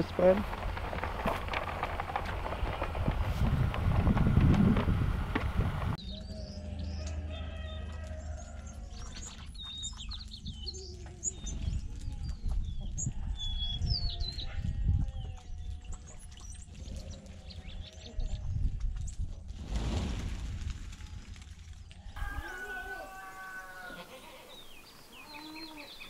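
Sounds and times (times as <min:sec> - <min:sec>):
songbirds chirping: 0:05.8 - 0:19.2, 0:21.6 - 0:26.0.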